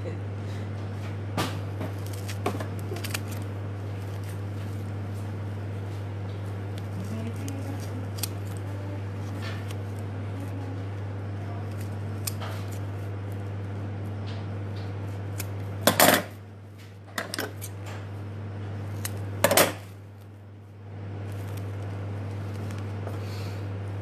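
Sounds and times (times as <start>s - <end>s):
scissors cutting: 2.0s - 4.4s, 6.8s - 10.7s, 11.6s - 12.9s.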